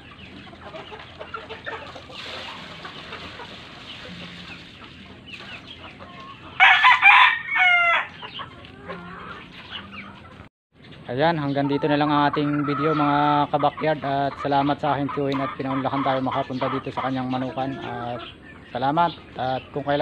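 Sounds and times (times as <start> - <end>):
chickens clucking: 0.0 - 20.0
rooster crowing: 6.6 - 8.2.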